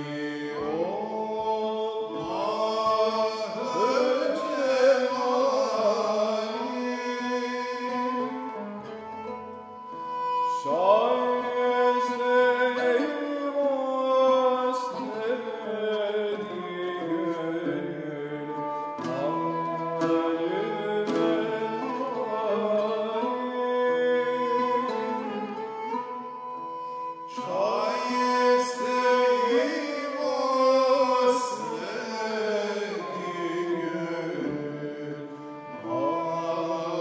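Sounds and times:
bowed fiddle melody with sliding notes: 0:00.0 - 0:37.0
plucked lute strokes: 0:00.0 - 0:37.0.

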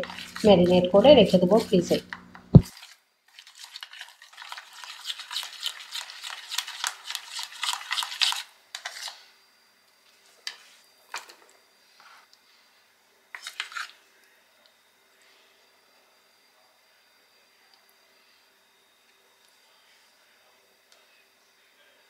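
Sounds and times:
spoon scraping a bowl: 0:00.0 - 0:09.2, 0:13.3 - 0:14.0.

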